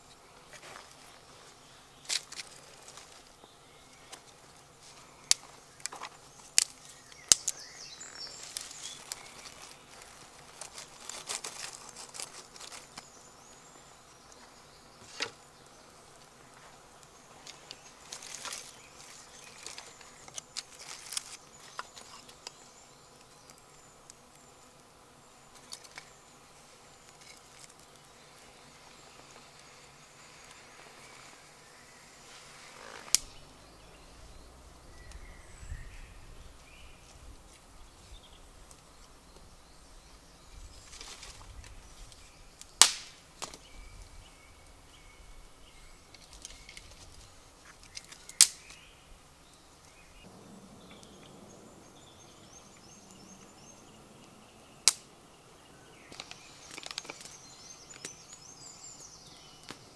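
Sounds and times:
wood fire crackling: 0:32.3 - 0:33.4, 0:40.9 - 0:43.5, 0:48.0 - 0:48.7, 0:54.8 - 0:55.1.

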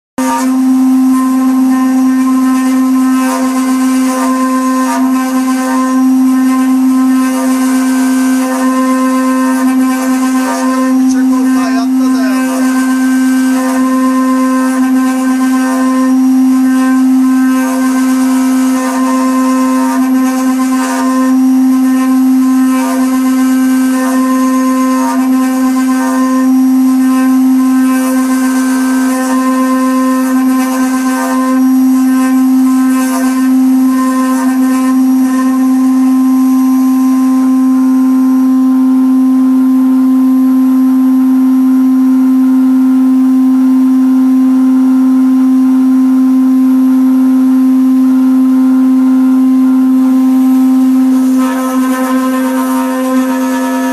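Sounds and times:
bit cutting wood: 0:00.2 - 0:37.5, 0:50.2 - 0:53.9
router spindles humming: 0:00.2 - 0:38.1, 0:49.9 - 0:53.9.

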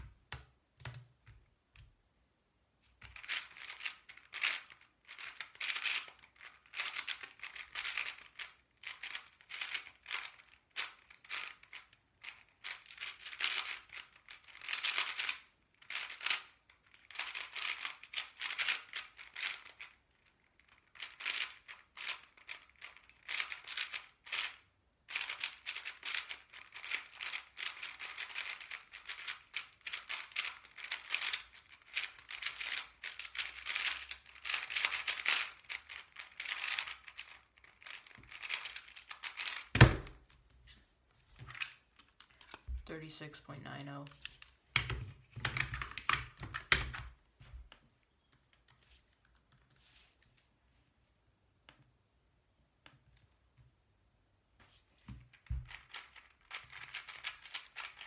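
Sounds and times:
puzzle cube plastic clacking: 0:03.0 - 0:40.3, 0:44.0 - 0:47.2, 0:55.3 - 0:58.0.

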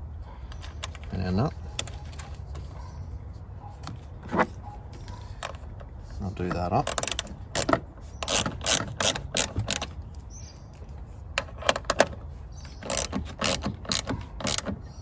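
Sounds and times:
hand ratchet clicking: 0:06.8 - 0:09.9, 0:12.8 - 0:14.8.

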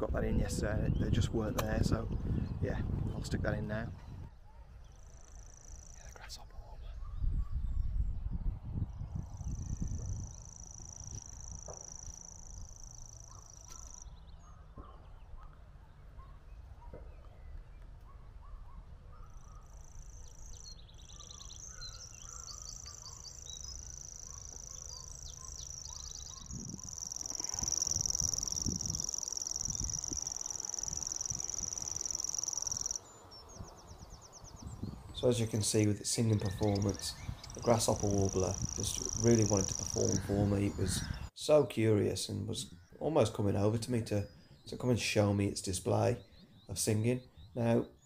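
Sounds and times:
low wind rumble: 0:00.0 - 0:05.2, 0:06.0 - 0:24.0, 0:24.8 - 0:41.3
small birds calling: 0:00.0 - 0:48.0
bird reeling trill: 0:09.4 - 0:14.6, 0:19.2 - 0:35.3, 0:36.2 - 0:41.3.

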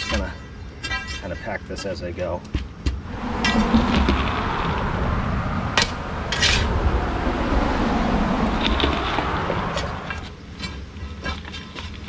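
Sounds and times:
metal bar scraping and thudding dirt: 0:00.0 - 0:01.8, 0:08.6 - 0:12.0
low rumble: 0:03.0 - 0:10.4.

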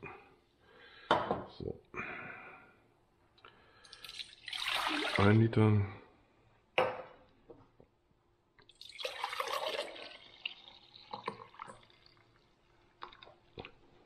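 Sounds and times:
liquid pouring into glass jug: 0:03.9 - 0:05.4, 0:08.6 - 0:13.9.

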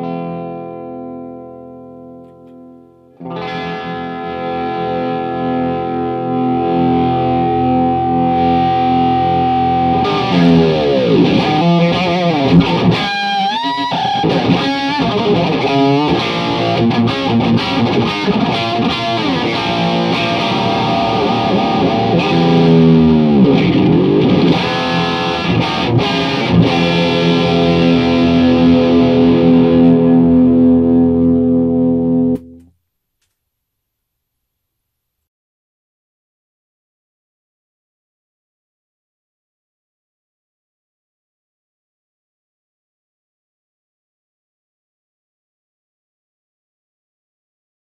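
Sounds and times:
distorted electric guitar: 0:00.0 - 0:32.7.

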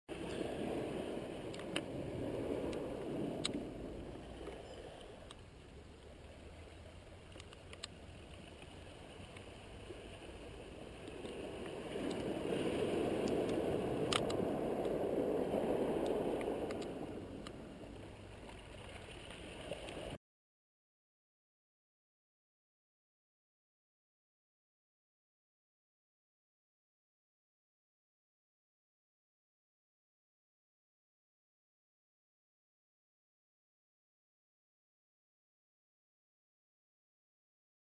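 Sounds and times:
surf on a cobble beach: 0:00.1 - 0:20.2.

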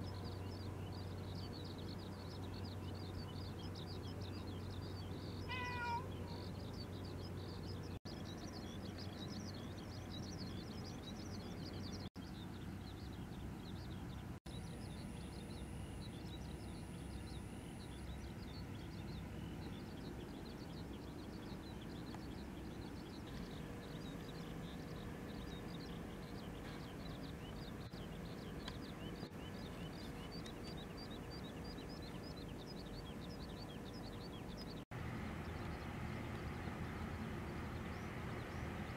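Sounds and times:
small birds chirping: 0:00.0 - 0:38.9
falling bird call: 0:05.5 - 0:06.4.

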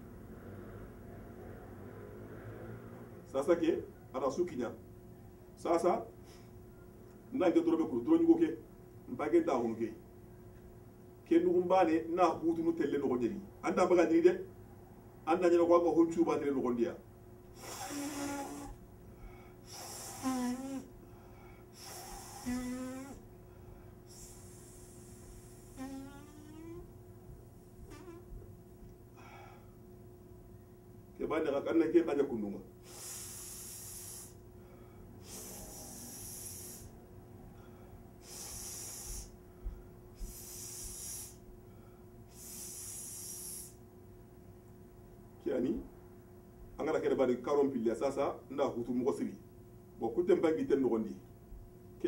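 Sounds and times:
man breathing through nose: 0:17.5 - 0:26.8, 0:29.2 - 0:29.8, 0:32.8 - 0:43.8
short nasal hum: 0:17.5 - 0:27.0, 0:27.7 - 0:28.4, 0:32.8 - 0:37.0, 0:37.6 - 0:39.4, 0:40.2 - 0:41.5, 0:42.3 - 0:43.8.

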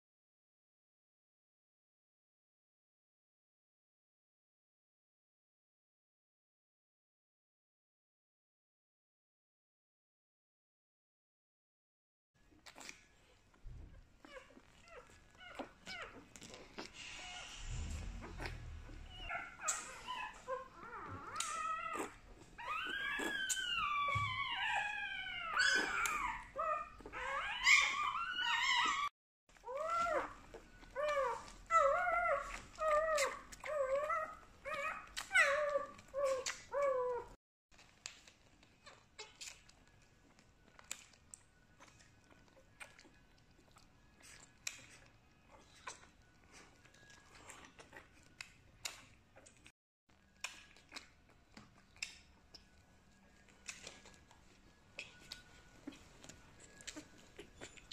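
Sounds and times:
puppy crying squeals: 0:14.2 - 0:37.4.

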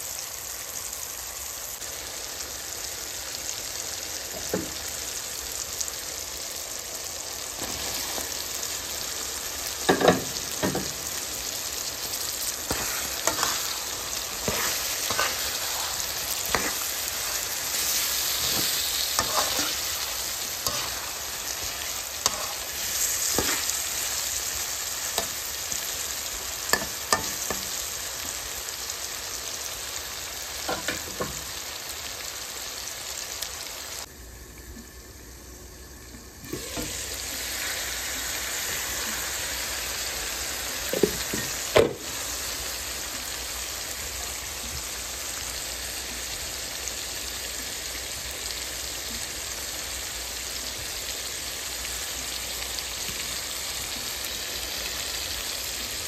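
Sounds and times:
curry sizzling in oil: 0:00.0 - 0:56.0
spatula scraping a pan: 0:12.1 - 0:24.4.

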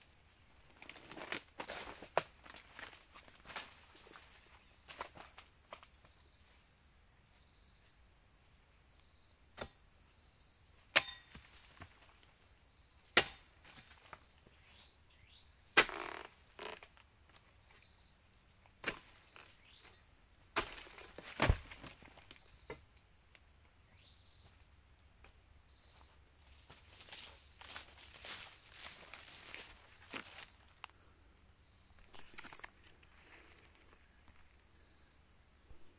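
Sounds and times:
high-pitched insect chorus: 0:00.0 - 0:35.9.

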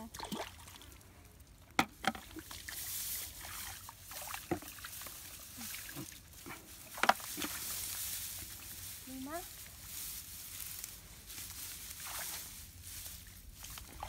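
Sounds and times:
water splashes: 0:00.0 - 0:08.6, 0:11.9 - 0:14.0
muddy water sloshing and pouring: 0:00.0 - 0:14.0.

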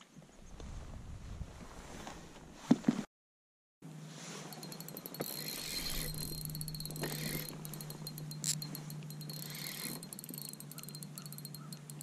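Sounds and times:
steady low hum: 0:03.9 - 0:12.0
fishing reel clicking: 0:04.5 - 0:12.0.

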